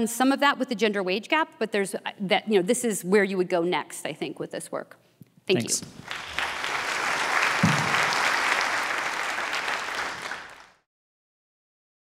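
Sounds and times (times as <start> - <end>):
audience applauding: 5.7 - 10.9.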